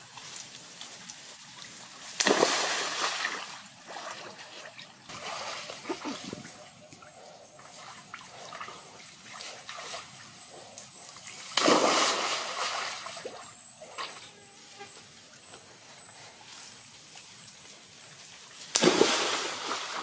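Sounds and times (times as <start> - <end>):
water sloshing: 0.2 - 14.2
loud splash into water: 2.2 - 3.5, 11.6 - 13.0, 18.8 - 20.0.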